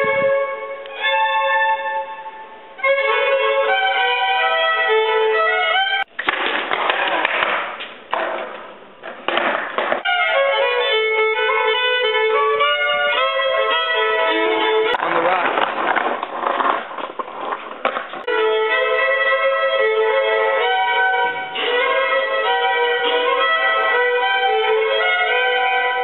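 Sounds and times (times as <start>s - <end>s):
solo fiddle melody: 0.0s - 6.1s, 10.0s - 15.0s, 18.2s - 26.0s
skateboard wheels rolling on pavement: 2.8s - 26.0s.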